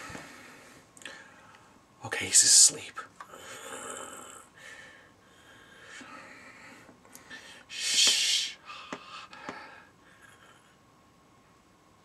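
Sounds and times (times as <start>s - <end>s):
man breathing softly: 0.0s - 1.8s, 3.2s - 10.8s
loud hissing exhale: 7.3s - 9.8s.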